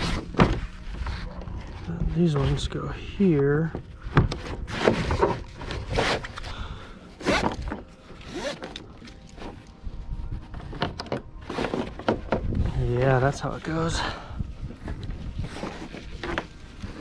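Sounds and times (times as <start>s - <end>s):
straps rasping through buckles: 7.2s - 9.8s.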